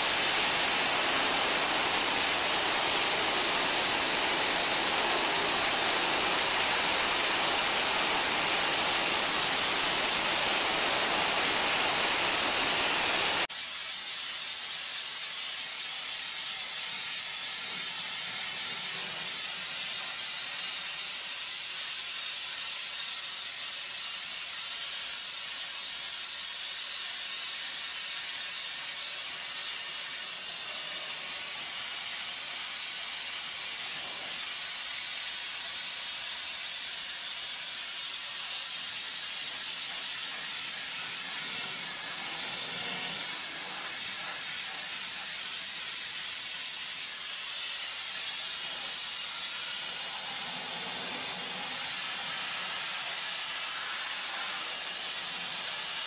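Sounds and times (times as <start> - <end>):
high-pressure nozzle hissing on metal: 0.0 - 56.0.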